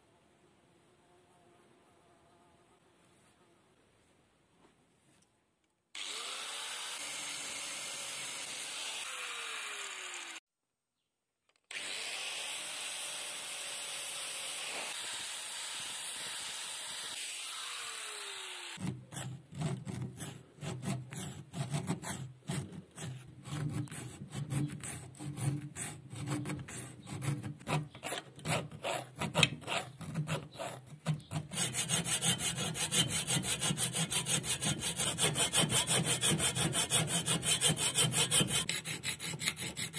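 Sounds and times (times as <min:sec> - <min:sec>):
hacksaw cutting metal: 0:18.8 - 0:39.9
hand file rasping on steel: 0:18.8 - 0:39.9.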